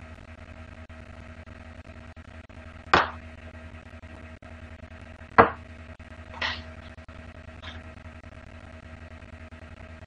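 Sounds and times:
electrical hum: 0:00.0 - 0:10.0
sharp knock: 0:03.0 - 0:03.2, 0:05.4 - 0:05.6.

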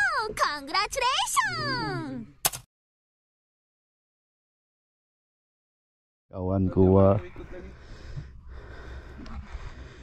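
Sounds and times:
sharp click: 0:02.4 - 0:02.7.

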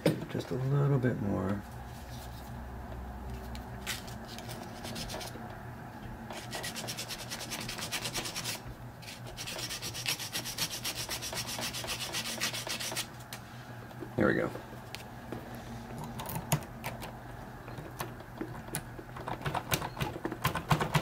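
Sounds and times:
sandpaper rubbing metal key: 0:06.4 - 0:13.1.

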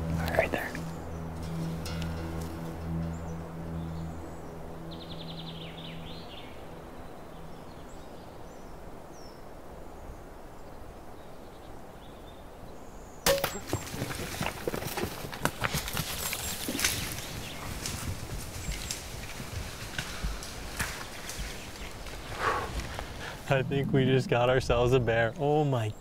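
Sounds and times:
twigs snapping and leaves rustling: 0:00.1 - 0:03.1, 0:13.3 - 0:23.5
crossbow shot: 0:13.3 - 0:13.8
bear running through brush: 0:13.4 - 0:24.2.

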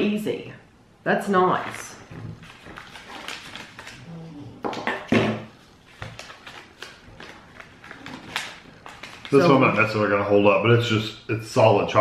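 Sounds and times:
paper packaging rustling: 0:02.2 - 0:04.1, 0:05.5 - 0:09.9.

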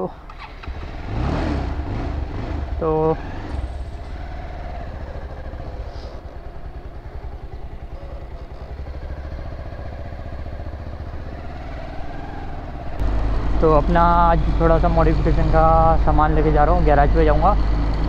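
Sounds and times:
motorcycle engine running: 0:00.4 - 0:18.0.

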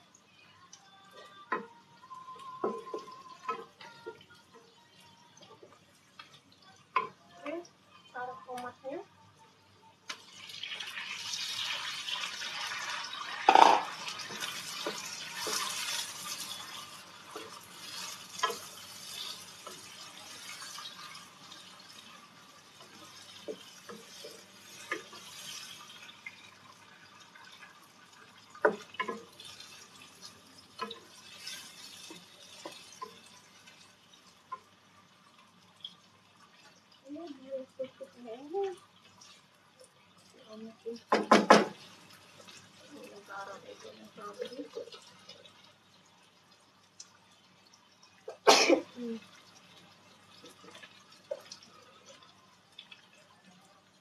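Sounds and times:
tap water running into sink: 0:10.1 - 0:16.9, 0:40.6 - 0:53.2
dishes knocking and clinking: 0:13.4 - 0:14.0, 0:41.1 - 0:41.8.

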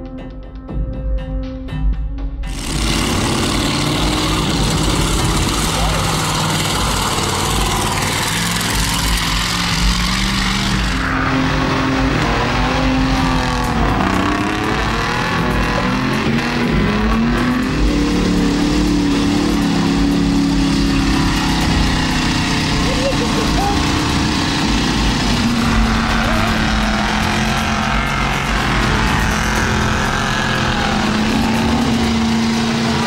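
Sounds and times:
low rumble: 0:02.5 - 0:33.0
truck engines revving: 0:02.5 - 0:33.0.

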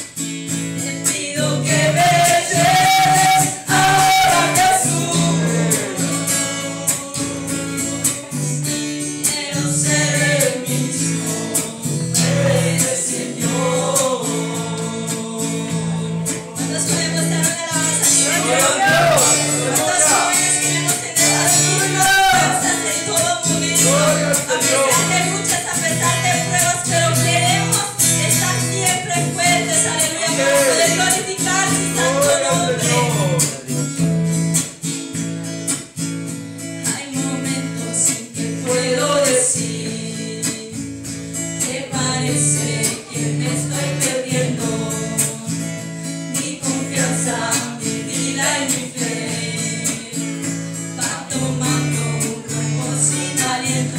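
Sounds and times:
man and woman singing: 0:00.0 - 0:34.1, 0:36.8 - 0:53.9
strummed guitar: 0:00.0 - 0:53.9.

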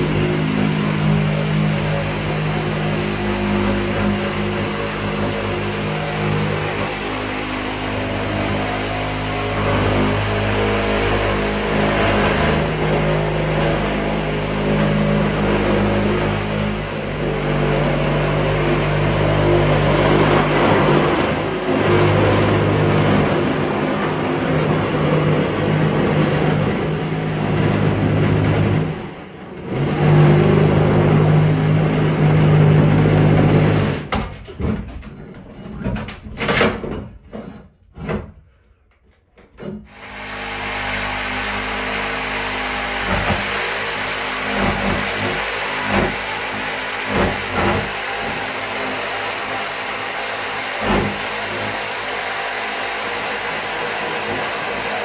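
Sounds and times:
oscillating multi-tool cutting: 0:39.9 - 0:55.0.

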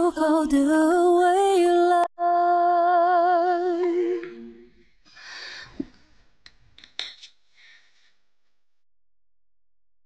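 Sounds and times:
woman singing with vibrato: 0:00.0 - 0:04.7.

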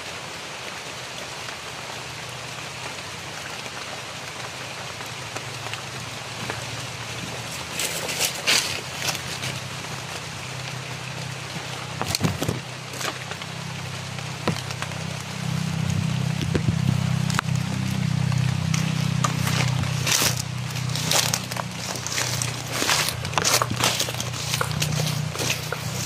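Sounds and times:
rustling leaves: 0:00.0 - 0:26.0
footsteps in undergrowth: 0:05.7 - 0:15.0, 0:15.8 - 0:26.0
twigs snapping: 0:07.3 - 0:10.2, 0:11.6 - 0:13.6, 0:14.3 - 0:15.0, 0:16.3 - 0:26.0
steady low rumble: 0:14.3 - 0:26.0.

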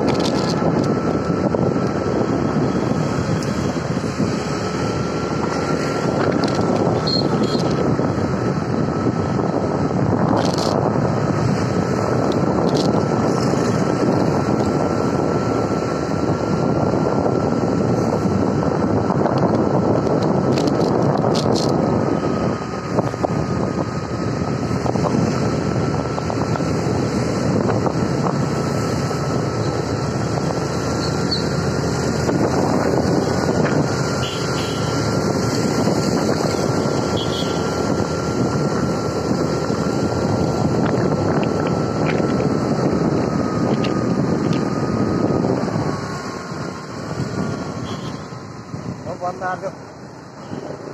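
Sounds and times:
vehicle engine and road noise: 0:00.0 - 0:50.9
wind rushing over microphone: 0:00.0 - 0:50.9
thin steady whine: 0:11.1 - 0:50.9.

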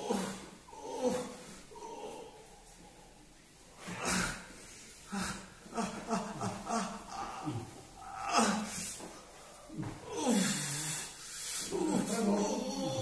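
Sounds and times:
man groaning in pain: 0:06.7 - 0:09.0, 0:10.0 - 0:11.0, 0:11.7 - 0:13.0.

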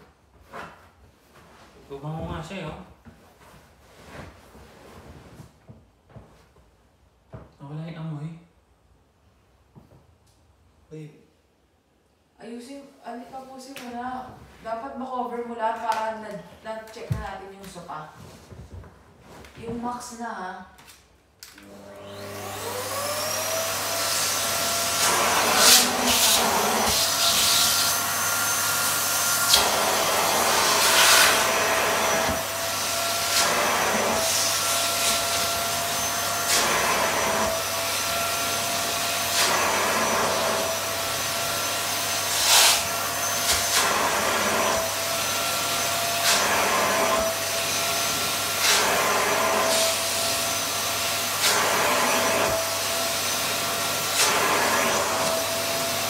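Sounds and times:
vacuum cleaner motor whine: 0:21.5 - 0:56.0.

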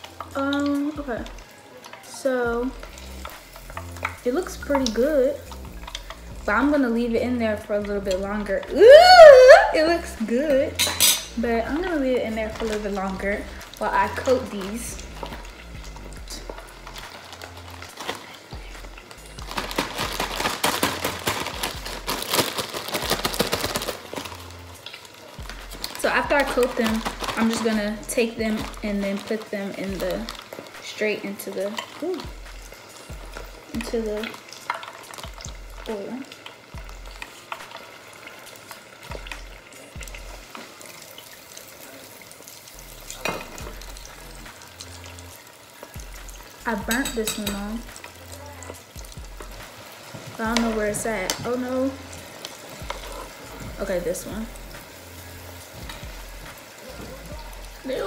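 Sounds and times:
food sizzling in deep fryer oil: 0:00.0 - 0:58.0
plastic bag crinkling: 0:16.2 - 0:41.6.

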